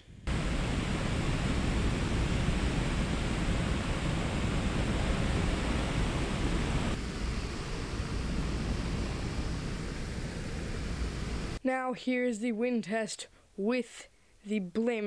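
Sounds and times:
fan wind rushing on microphone: 0.0s - 11.6s.

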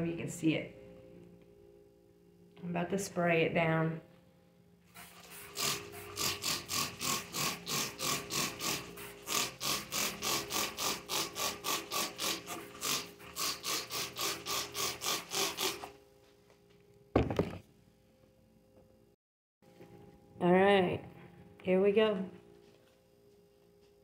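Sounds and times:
trigger spray bottle spraying: 5.0s - 15.9s
thump: 17.2s - 17.6s.

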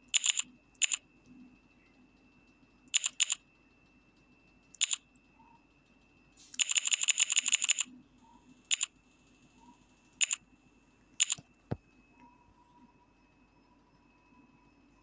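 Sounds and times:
phone keyboard clicks: 0.2s - 1.0s, 3.0s - 3.4s, 11.2s - 11.8s.

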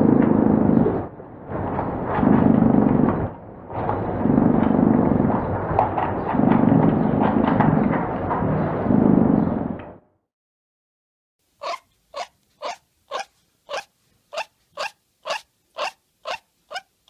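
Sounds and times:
animal low rough calls: 0.0s - 7.5s, 11.6s - 16.9s.

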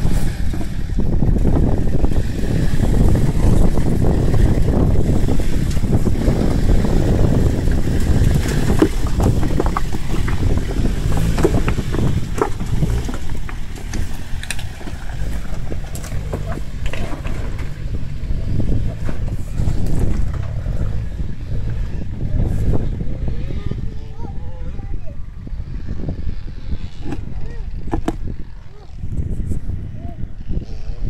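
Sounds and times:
stones knocking under tyres: 0.0s - 21.1s, 27.0s - 28.3s
truck engine at low revs: 0.0s - 31.0s
wind rumble on microphone: 0.0s - 31.0s.

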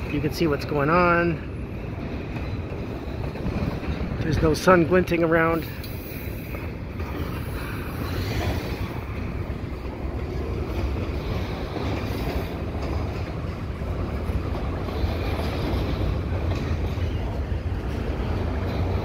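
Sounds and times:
steel wheels on rails: 0.0s - 19.0s.

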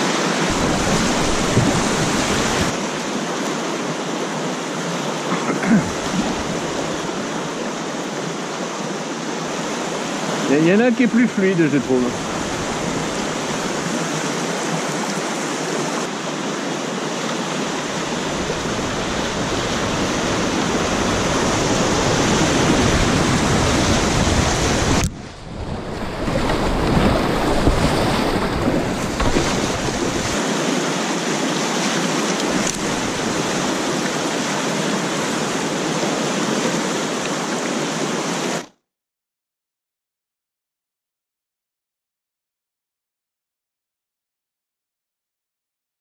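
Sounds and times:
whitewater rapids rushing: 0.0s - 38.7s
wind buffeting microphone: 0.5s - 2.8s.

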